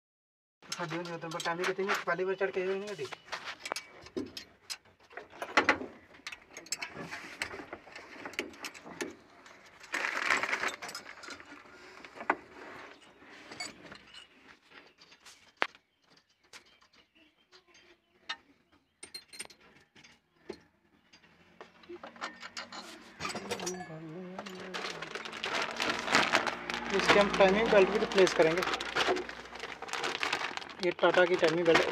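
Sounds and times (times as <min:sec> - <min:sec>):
metal tools clinking on engine parts: 0:06.2 - 0:11.7, 0:12.9 - 0:15.2, 0:19.0 - 0:20.2, 0:21.0 - 0:25.1
metal scraping: 0:21.9 - 0:30.6.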